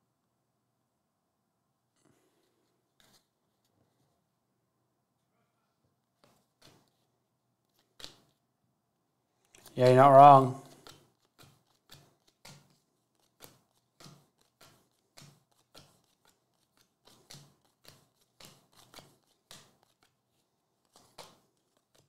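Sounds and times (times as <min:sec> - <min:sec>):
trading cards flicking: 0:07.7 - 0:08.4, 0:09.5 - 0:20.2, 0:20.8 - 0:22.0.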